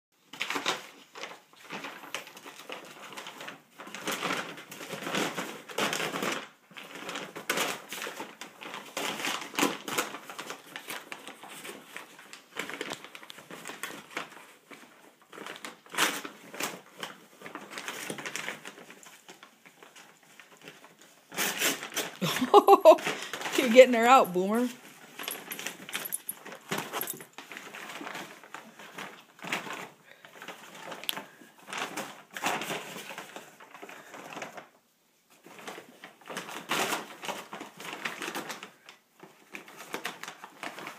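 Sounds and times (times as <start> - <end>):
paper bag crackling and rustling: 0.2 - 40.9.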